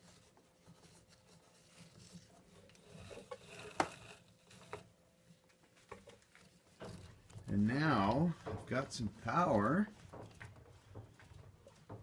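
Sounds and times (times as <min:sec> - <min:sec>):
rope rustling and scraping on wood: 0:00.0 - 0:12.0
light clicks and knocks: 0:05.6 - 0:12.0.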